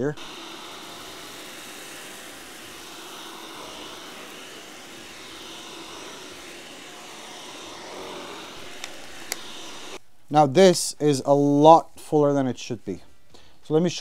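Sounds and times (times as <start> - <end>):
stick vacuum running: 0.0 - 10.0.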